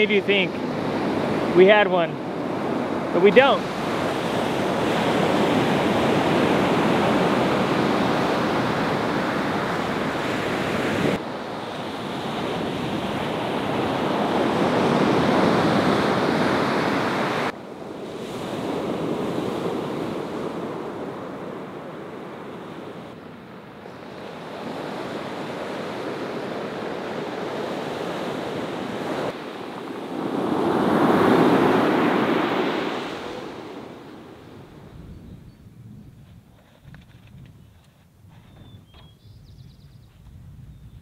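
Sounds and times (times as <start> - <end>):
ocean surf washing ashore: 0.0 - 35.0
wind buffeting microphone: 34.4 - 41.0.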